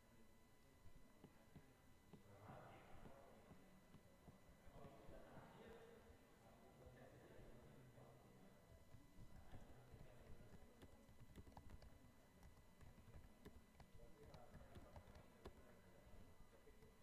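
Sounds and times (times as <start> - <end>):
typing on computer keyboard: 8.9 - 17.0.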